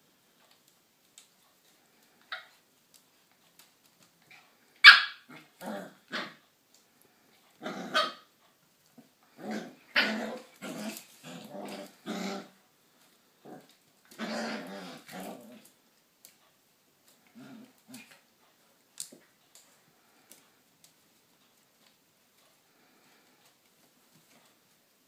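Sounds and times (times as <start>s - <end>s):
dog barking: 4.8s - 5.3s
dogs growling: 5.3s - 6.4s, 7.0s - 8.2s, 9.0s - 12.6s, 13.3s - 15.8s, 17.1s - 18.2s.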